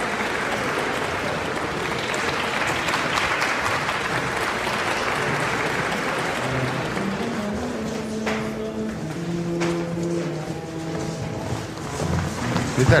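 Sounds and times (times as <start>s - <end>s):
crowd applauding: 0.0s - 8.2s.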